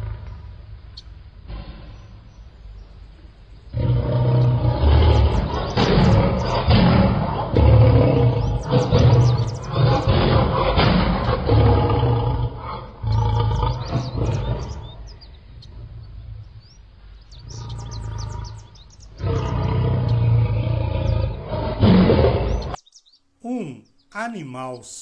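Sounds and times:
lion roaring: 0.0s - 0.7s, 1.4s - 2.4s, 3.7s - 22.8s
high bird chirps: 4.4s - 6.8s, 8.0s - 10.2s, 13.0s - 20.4s, 22.3s - 25.0s.

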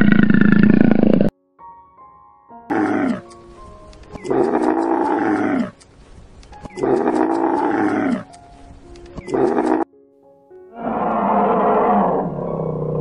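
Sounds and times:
camel bellowing: 2.7s - 3.3s, 4.2s - 5.8s, 6.8s - 8.3s, 9.2s - 9.9s, 10.7s - 13.0s.

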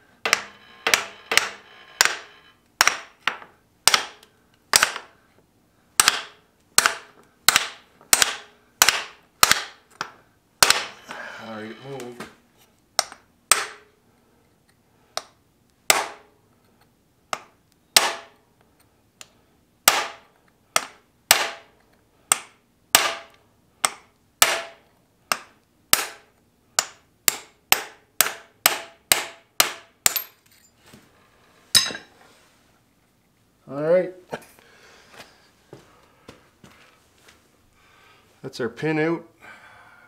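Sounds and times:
hammer striking steel punch: 0.2s - 3.2s, 10.6s - 12.3s, 13.0s - 13.9s, 15.9s - 16.3s, 17.4s - 18.3s, 20.8s - 21.7s, 22.3s - 23.3s, 23.9s - 30.3s.

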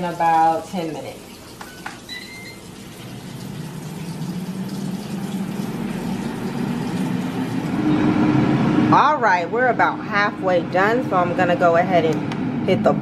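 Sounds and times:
air fryer fan humming: 0.0s - 13.0s
air fryer beep: 1.6s - 8.9s.

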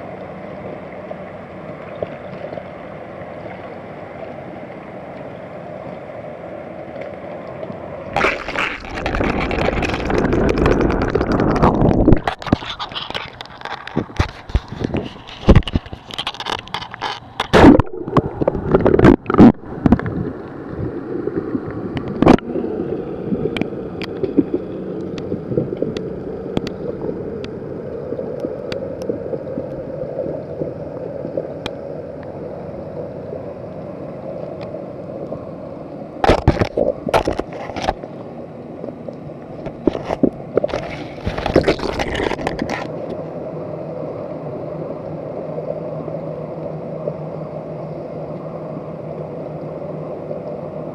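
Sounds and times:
low underwater hum: 0.0s - 50.9s
water sloshing: 8.0s - 22.5s, 39.6s - 43.2s.

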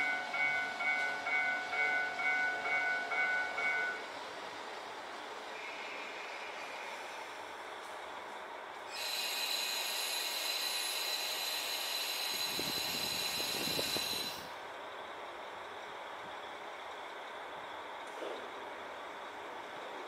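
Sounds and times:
diesel railcar engine running: 0.0s - 20.0s
loud hiss with ringing tones: 8.9s - 14.6s.

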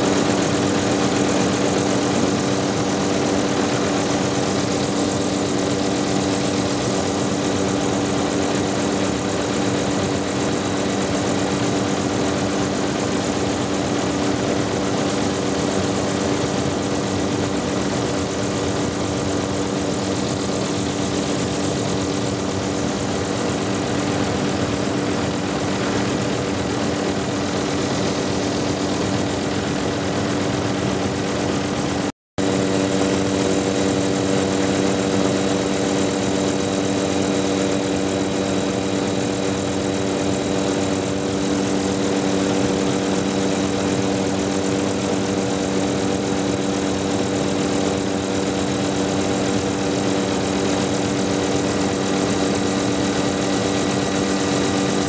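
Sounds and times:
helicopter engine and rotor drone: 0.0s - 55.0s.

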